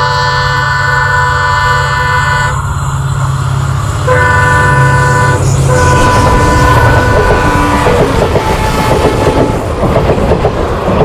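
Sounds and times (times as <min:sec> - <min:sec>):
train horn blasts: 0:00.0 - 0:02.7, 0:04.0 - 0:09.6
train rumbling: 0:00.0 - 0:11.0.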